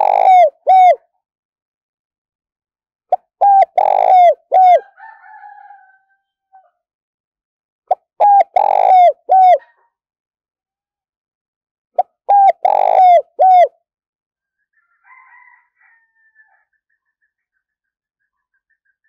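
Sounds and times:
dove cooing: 0.0s - 1.0s, 3.4s - 5.2s, 8.2s - 9.8s, 12.0s - 13.7s.

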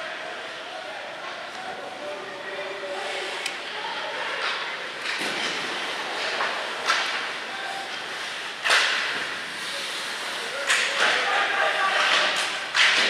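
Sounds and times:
hockey sticks hitting puck: 4.3s - 13.0s.

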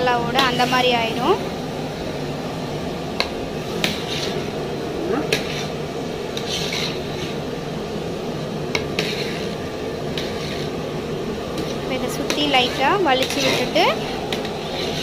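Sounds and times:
steady low hum: 0.0s - 15.0s
spoon scraping through rice: 6.4s - 7.4s, 8.8s - 10.8s, 11.6s - 15.0s.

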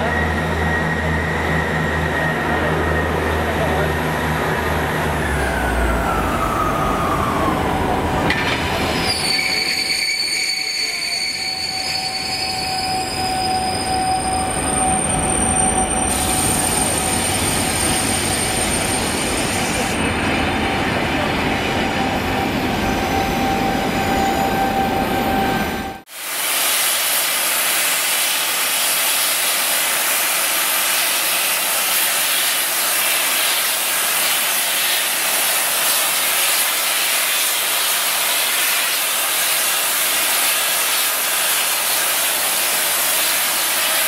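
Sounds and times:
downward gliding whine: 0.0s - 9.1s, 11.6s - 26.0s
train coaches rumbling: 0.0s - 26.1s
wheels squealing: 8.5s - 20.2s.

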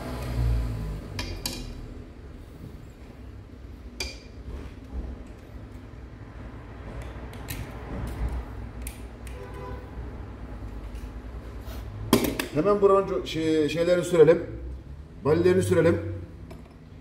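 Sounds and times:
hand tool clicks and snips: 7.0s - 9.4s.

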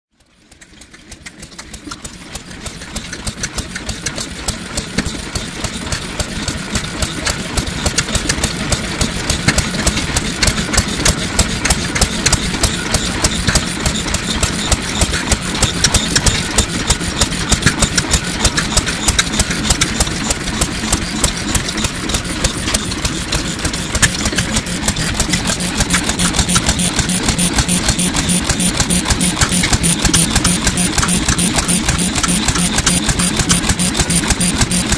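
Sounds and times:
stationary oil engine running: 0.1s - 34.9s.

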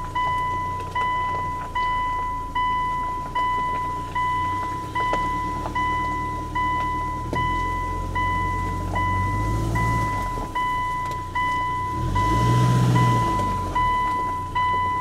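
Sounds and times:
level-crossing warning bell: 0.0s - 15.0s.

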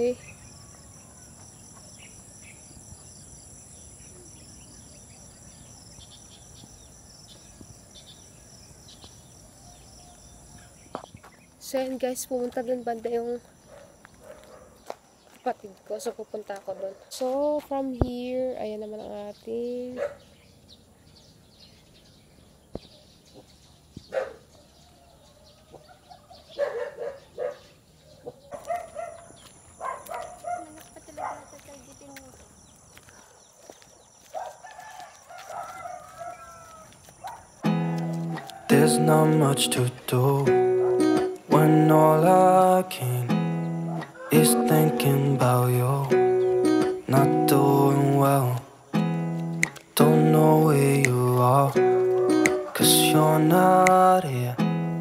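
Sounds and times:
insects chirring: 0.0s - 55.0s
quiet outdoor ambience: 0.0s - 55.0s
fowl calling: 43.6s - 45.6s, 51.1s - 54.2s
sharp click: 49.4s - 49.9s.

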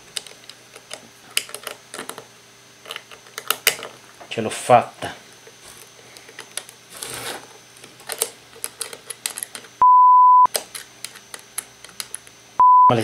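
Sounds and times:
censor bleep: 9.8s - 10.5s, 12.6s - 13.0s.

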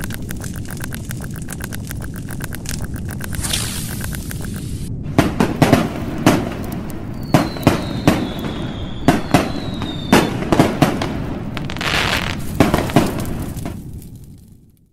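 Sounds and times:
sharp bangs and crackling pops: 0.0s - 14.9s
high whistle sliding down: 7.2s - 10.3s.

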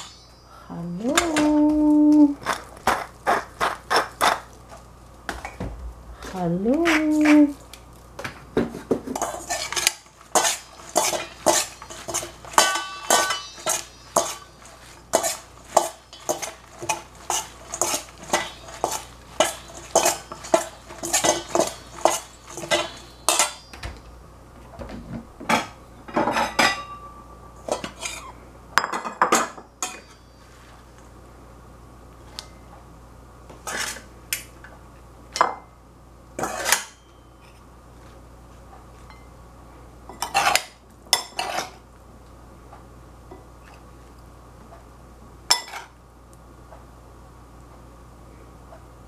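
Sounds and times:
bowl ringing: 0.0s - 0.7s, 11.2s - 15.0s, 22.6s - 23.9s, 26.6s - 27.7s, 29.6s - 30.6s
metal spoon clinking on bowl: 9.2s - 23.8s, 28.8s - 30.3s.

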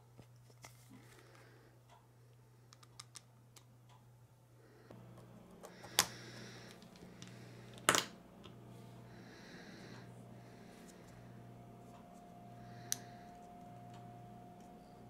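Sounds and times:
plastic parts clicking and tapping: 2.7s - 3.7s.

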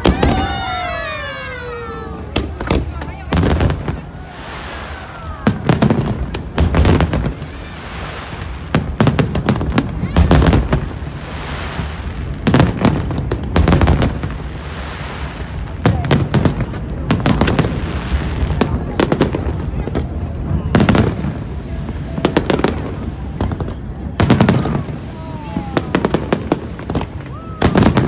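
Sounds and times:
fireworks hiss: 0.0s - 16.0s
fireworks bursting: 0.0s - 28.0s.

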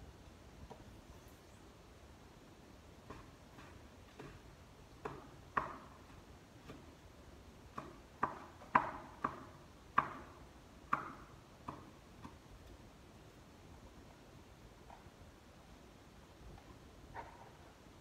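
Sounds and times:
knife chopping food: 3.0s - 4.4s.

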